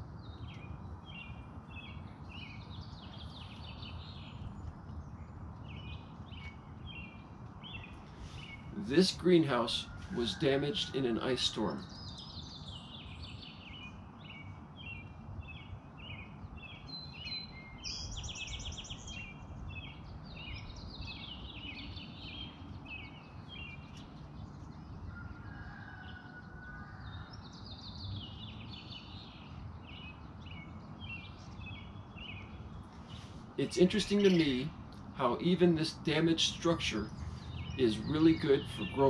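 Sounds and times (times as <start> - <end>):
birds chirping: 0.0 - 39.0
low background noise: 0.0 - 39.0
buzzy bird trill: 33.1 - 39.0.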